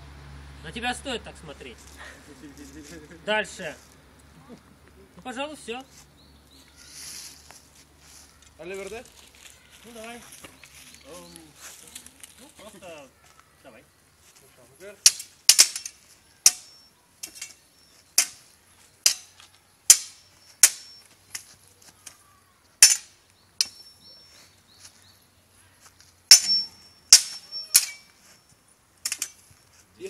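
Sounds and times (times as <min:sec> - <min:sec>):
swords clashing: 0:15.0 - 0:17.6, 0:18.2 - 0:18.4, 0:19.0 - 0:21.5, 0:22.8 - 0:23.8, 0:26.3 - 0:28.2, 0:29.1 - 0:29.4.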